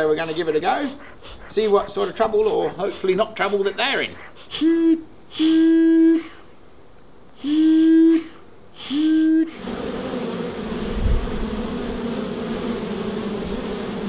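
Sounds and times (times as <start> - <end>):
honey bees buzzing: 0.0 - 4.6, 9.0 - 14.0
bee smoker bellows puffs: 0.0 - 4.7.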